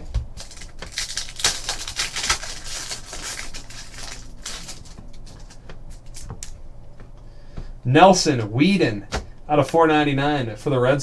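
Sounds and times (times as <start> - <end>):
foil wrappers crinkling: 0.0 - 6.6.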